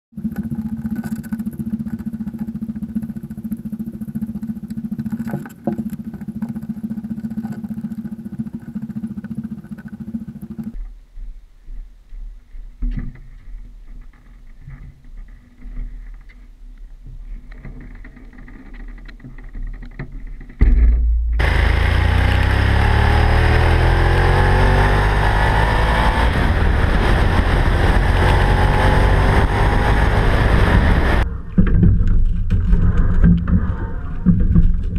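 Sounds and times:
steady low rumble: 20.6s - 34.9s
motorcycle engine accelerating: 21.4s - 31.6s.

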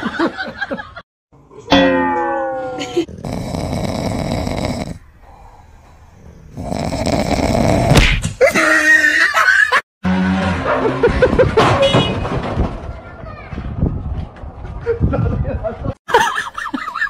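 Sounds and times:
dog snoring: 3.2s - 5.5s, 6.5s - 8.0s.

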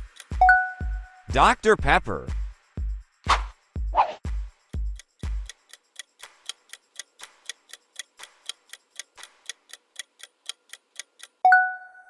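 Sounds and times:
timer ticking: 0.0s - 2.0s, 4.8s - 11.5s
thumping music beat: 0.0s - 11.2s.

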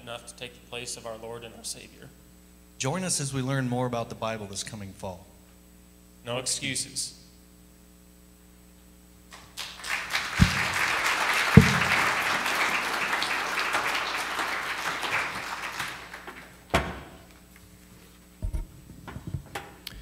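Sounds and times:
congregation applauding: 9.3s - 16.7s.

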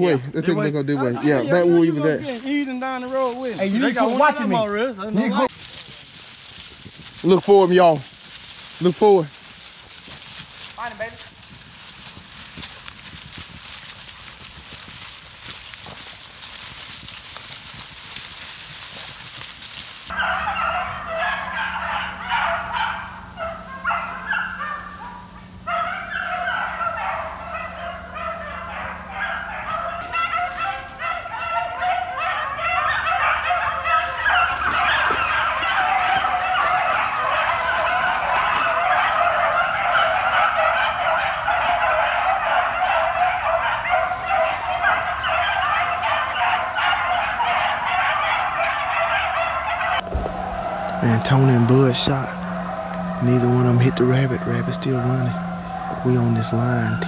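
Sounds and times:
hounds baying: 0.0s - 57.0s
rustling brush: 1.0s - 20.2s, 30.0s - 31.0s, 33.8s - 42.8s, 43.8s - 45.4s, 50.0s - 57.0s.

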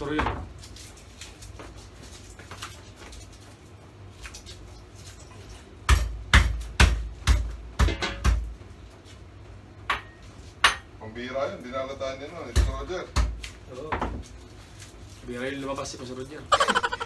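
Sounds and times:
faint clatter of kitchen utensils: 0.0s - 16.4s
knife chopping on wooden board: 5.9s - 8.4s.

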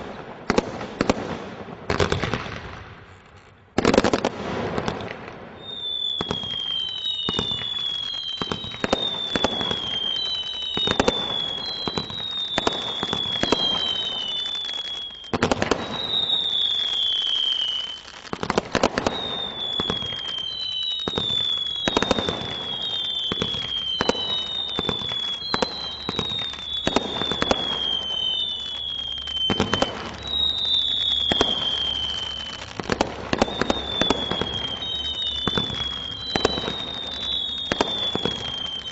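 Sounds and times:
firework bangs: 0.0s - 38.9s
firework whistles: 3.8s - 38.9s.

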